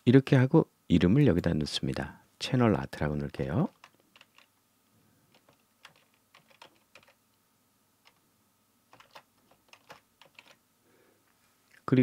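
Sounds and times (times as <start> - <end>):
keyboard typing: 3.7 - 4.5, 5.3 - 7.2, 8.9 - 10.6.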